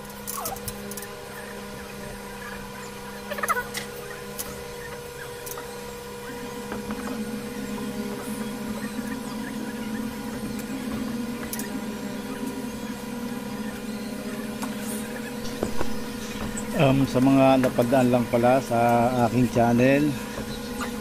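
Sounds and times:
low rough drone: 0.0 - 21.0
steady machine hum: 0.0 - 21.0.

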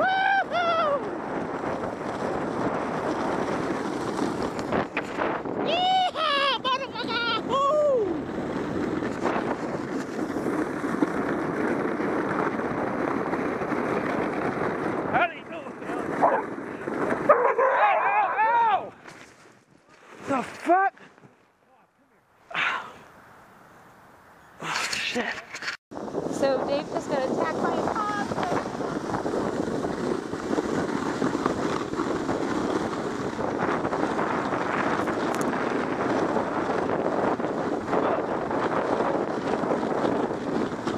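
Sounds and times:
person whooping: 0.0 - 1.2, 5.6 - 8.2, 22.5 - 23.0
wind on microphone: 0.0 - 19.1, 24.6 - 40.9
sled sliding on snow: 0.0 - 20.9, 24.6 - 40.9.

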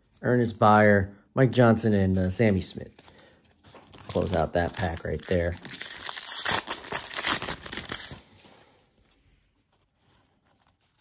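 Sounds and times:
foil wrapper tearing and crinkling: 3.8 - 8.6.

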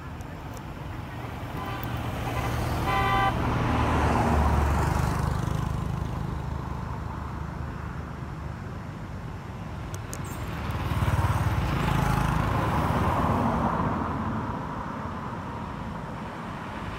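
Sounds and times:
short horn toot: 1.6 - 3.4.

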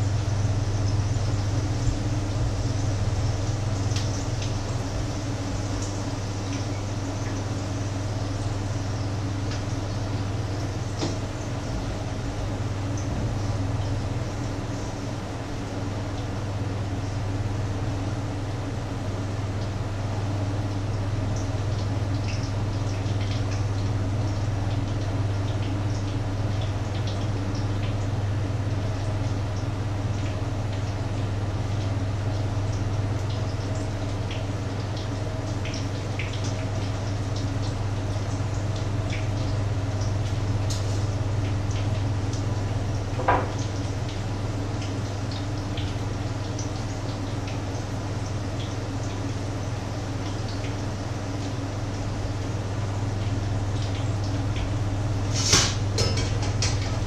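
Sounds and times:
low steady hum: 0.0 - 57.0
eggs sizzling in a pan: 55.1 - 56.9.

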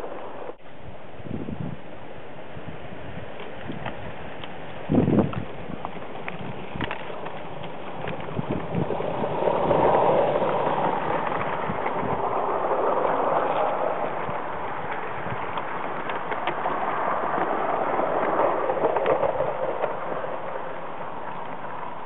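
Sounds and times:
wagons rolling with wheel clicks: 3.3 - 22.0.

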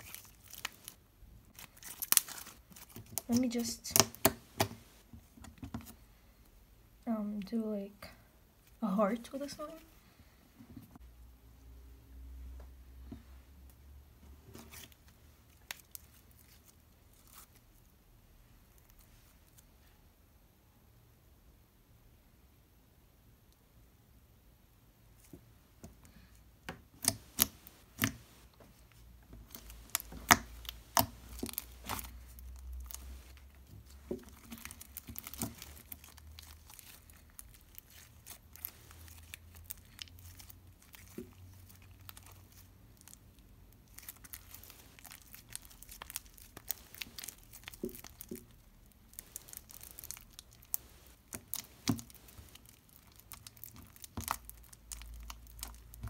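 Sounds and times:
slime clicking and popping: 29.6 - 33.1, 49.3 - 56.0.

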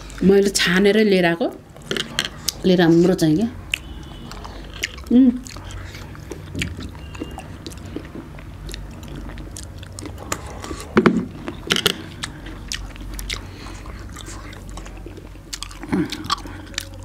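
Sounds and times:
people chewing fruit: 0.0 - 0.6, 1.5 - 17.0.

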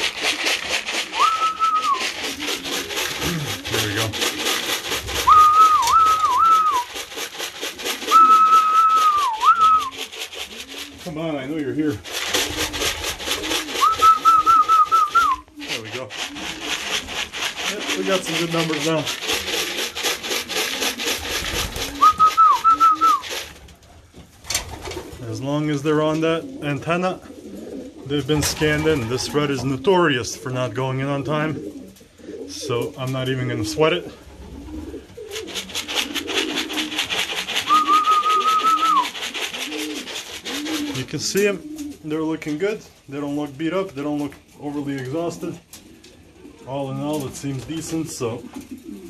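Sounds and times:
pigeon cooing: 0.0 - 11.2, 11.9 - 23.6, 26.1 - 42.1, 45.2 - 49.0
person whistling: 1.2 - 2.1, 5.3 - 6.9, 8.1 - 10.0, 13.8 - 15.4, 22.0 - 23.2, 37.6 - 39.1
fast steady rattle: 2.0 - 10.6, 35.4 - 41.0.

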